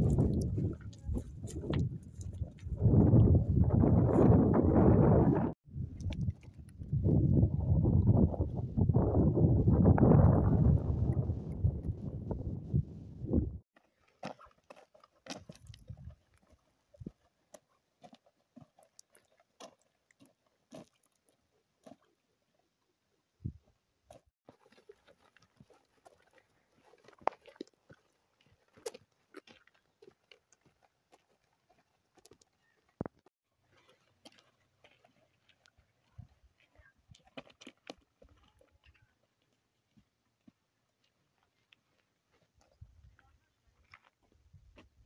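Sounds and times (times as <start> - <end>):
footsteps on stony path: 0.0 - 4.6, 13.8 - 22.1, 24.1 - 45.0.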